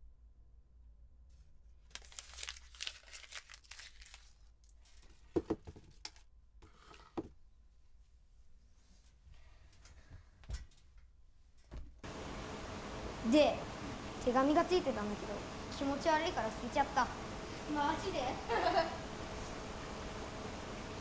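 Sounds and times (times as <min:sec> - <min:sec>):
paper tearing and crinkling: 0:01.8 - 0:05.3.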